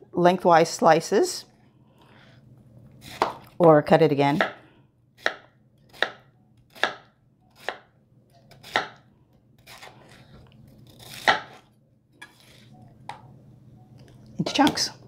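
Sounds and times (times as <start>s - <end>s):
knife chopping on cutting board: 3.1s - 3.4s, 5.2s - 7.0s, 8.5s - 9.0s, 11.0s - 11.6s.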